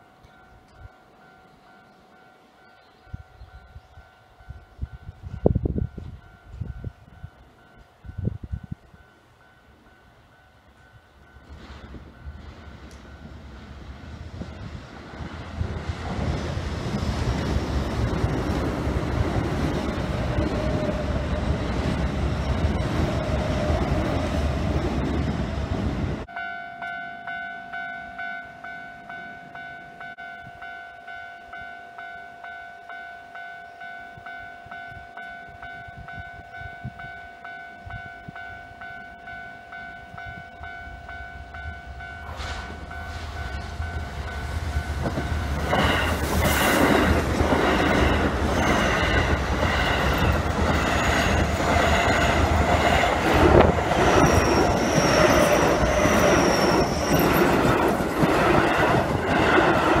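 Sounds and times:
level-crossing warning bell: 0.0 - 13.8, 26.2 - 60.0
electric train passing: 0.0 - 60.0
train wheels clattering on rails: 42.2 - 60.0
thin high squeal: 54.1 - 57.5.

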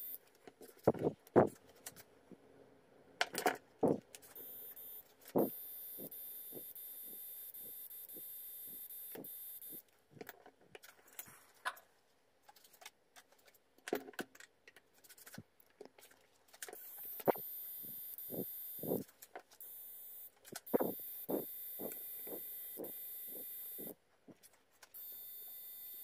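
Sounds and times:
soldering gun hiss with ticks: 4.2 - 9.9, 16.8 - 24.0, 24.9 - 26.0
wires clicking and rustling: 9.1 - 17.4.

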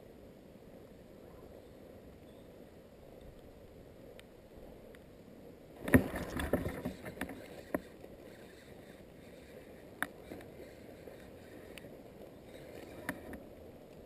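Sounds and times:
faint wind: 0.0 - 14.0
handling knocks and rustles: 5.8 - 7.9
water sloshing: 5.8 - 9.5.

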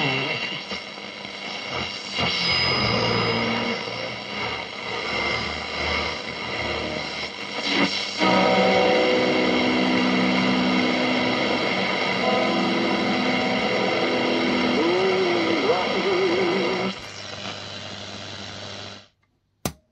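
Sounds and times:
radio hiss and whistles: 0.0 - 19.0
music from radio loudspeaker: 0.0 - 19.1
sliding radio tone: 11.4 - 18.6.

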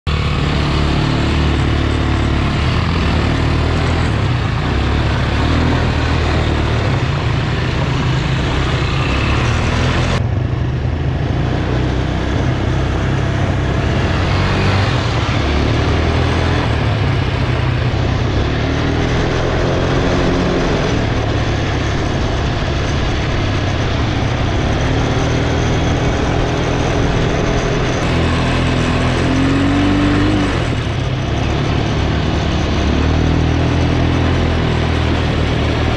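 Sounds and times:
quad bike engine revving: 0.1 - 35.9.

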